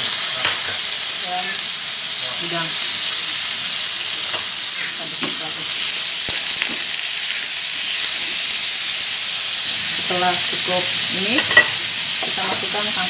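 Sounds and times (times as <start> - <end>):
seafood sizzling in oil: 0.0 - 13.0.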